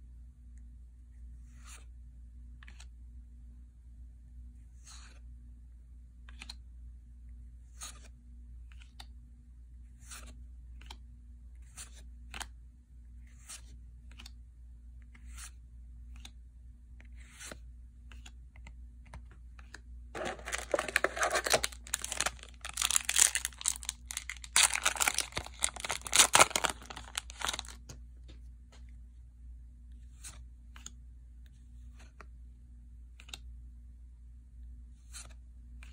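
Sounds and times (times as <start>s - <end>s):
trading cards flipping and sliding: 1.4s - 1.9s, 2.6s - 2.9s, 4.7s - 5.2s, 6.2s - 6.6s, 7.7s - 9.1s, 9.9s - 11.0s, 11.6s - 12.5s, 13.2s - 14.4s, 15.0s - 16.4s, 17.0s - 28.0s, 29.9s - 32.3s, 33.2s - 33.5s, 34.9s - 35.9s
foil wrapper crinkling and tearing: 20.2s - 27.8s.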